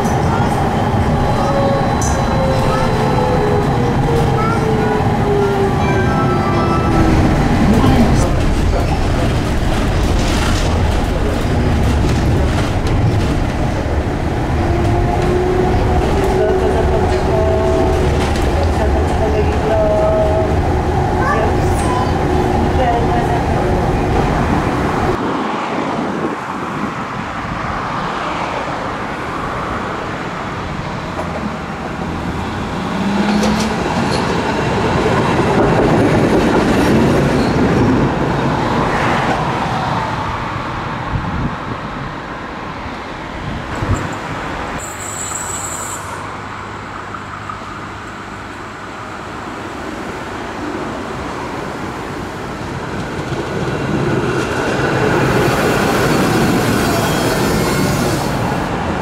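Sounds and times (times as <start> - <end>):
trams rolling on track: 0.0 - 59.0
high wheel squeal: 44.8 - 46.3.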